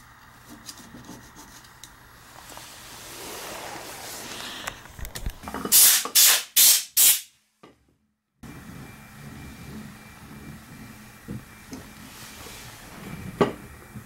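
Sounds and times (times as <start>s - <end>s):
hissing spray bursts: 5.7s - 7.3s.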